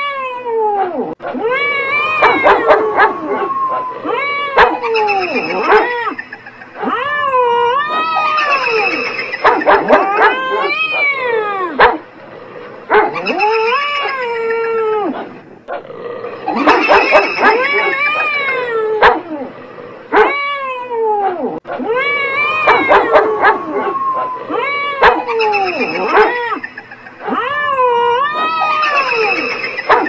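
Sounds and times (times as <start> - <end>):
cats yowling: 0.0 - 12.0, 12.8 - 15.4, 16.1 - 19.5, 20.1 - 30.0.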